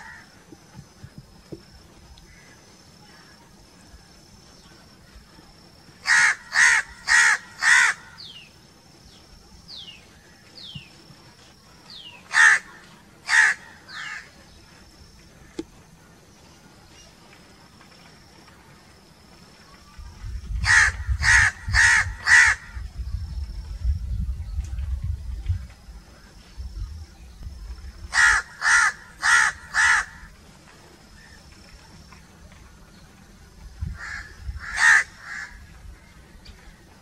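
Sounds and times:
crows cawing: 0.0s - 0.3s, 6.0s - 8.2s, 12.3s - 14.3s, 20.6s - 22.8s, 28.1s - 30.3s, 34.0s - 35.7s.

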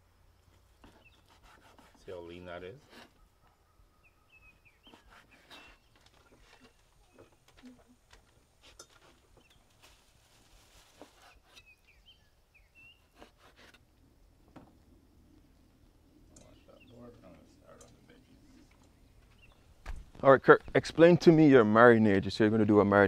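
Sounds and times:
faint bird chirps: 0.8s - 8.0s, 11.1s - 13.5s, 15.1s - 19.8s.

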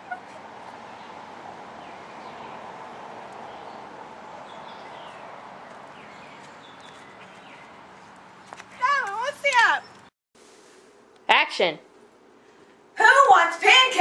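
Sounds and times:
steady hiss: 10.4s - 11.2s.

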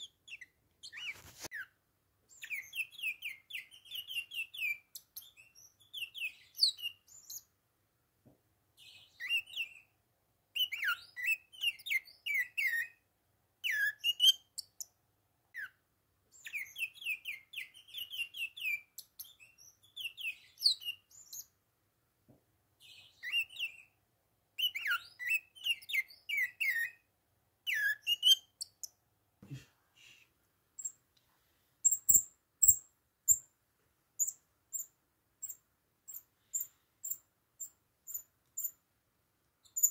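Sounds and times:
high thin chirps: 31.8s - 33.5s.

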